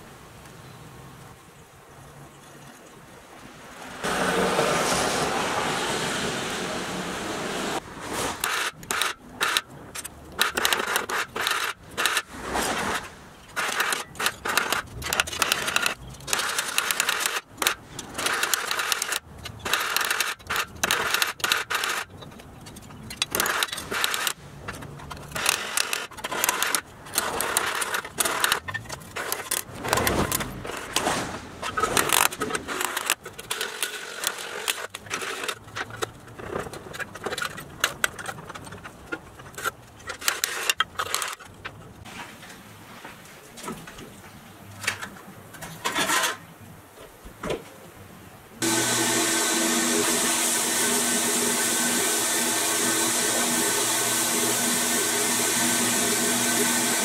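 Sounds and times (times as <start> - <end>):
scratchy noise: 4.0 - 9.6, 10.4 - 17.5.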